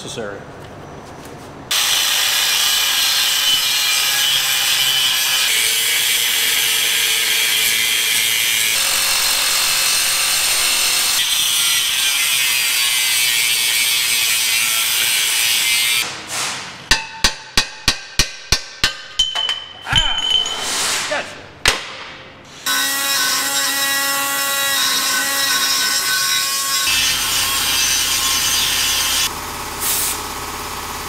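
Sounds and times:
reciprocating saw cutting metal: 1.7 - 16.0, 22.6 - 29.3.

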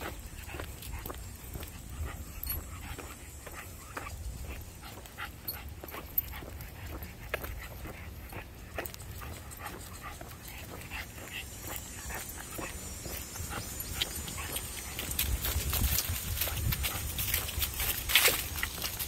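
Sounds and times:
small dog noises: 0.0 - 19.0
dog steps on asphalt: 8.8 - 19.0.

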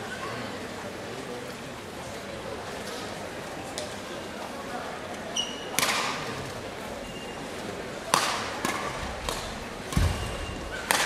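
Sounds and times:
shoe squeaks on court: 5.3 - 5.8
racket striking shuttlecock: 5.8 - 6.2, 8.1 - 11.0.

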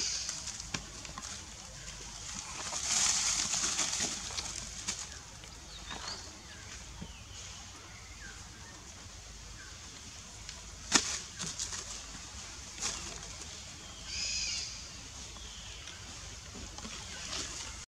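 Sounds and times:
leaves rustling: 0.0 - 17.8
branches snapping and knocking: 10.8 - 12.1.

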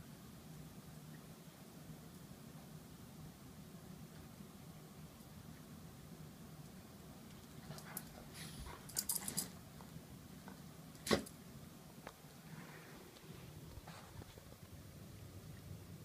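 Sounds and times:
dog collar tags clinking: 8.8 - 9.6.

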